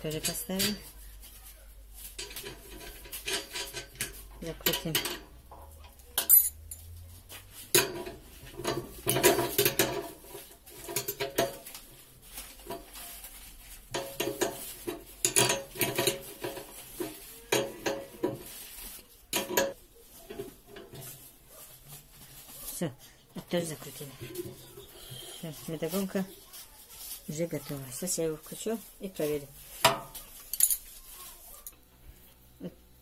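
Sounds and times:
wrench clinking and scraping on nut: 0.0 - 1.0, 2.0 - 7.0, 7.7 - 11.8, 13.9 - 18.5, 29.8 - 31.0.

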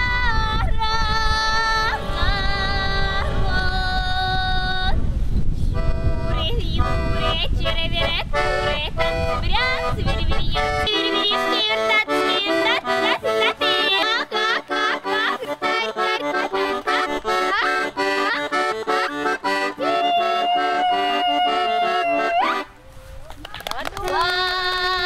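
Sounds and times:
girl singing: 0.0 - 5.1, 6.3 - 18.8, 24.1 - 25.0
button accordion folk tune: 1.3 - 4.0, 5.7 - 22.7.

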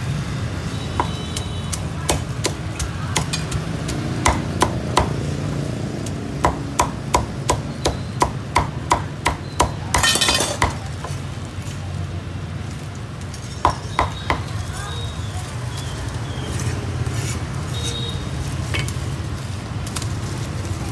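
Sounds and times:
cleaver chopping meat: 0.9 - 5.3, 5.9 - 11.2.

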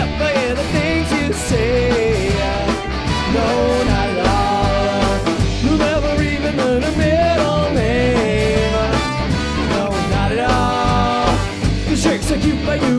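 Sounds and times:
live band playing: 0.0 - 12.9
man singing: 0.0 - 12.9
horn section: 2.1 - 6.4, 8.2 - 11.7.

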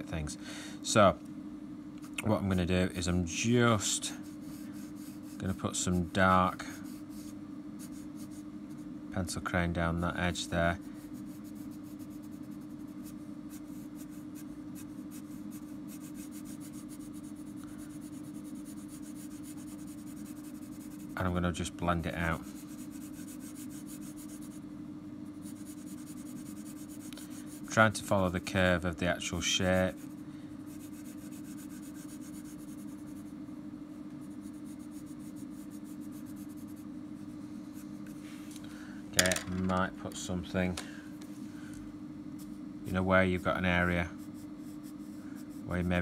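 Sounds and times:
steady low hum: 0.0 - 46.0
pencil crayon scratching on paper: 4.2 - 5.6, 11.2 - 21.3, 22.3 - 24.6, 25.4 - 27.8, 30.7 - 33.3, 34.2 - 36.8, 44.1 - 46.0.

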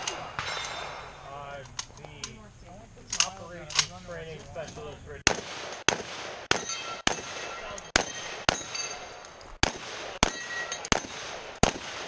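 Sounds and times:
metallic rings of steel targets: 0.0 - 1.4, 6.6 - 9.3, 10.2 - 11.2
rapid rifle gunfire: 9.6 - 12.0.

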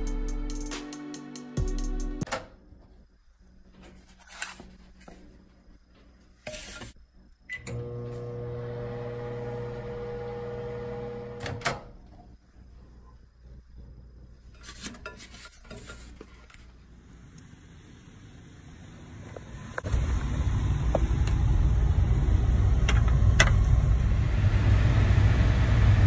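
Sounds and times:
microwave humming: 5.7 - 14.6, 18.3 - 26.0.

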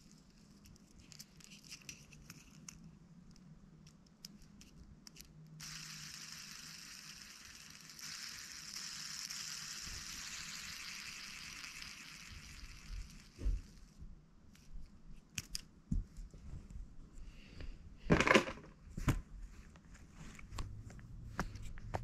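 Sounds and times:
fidget toys clicking and rustling: 0.0 - 14.0, 14.6 - 15.7
steady hiss: 5.6 - 14.0.

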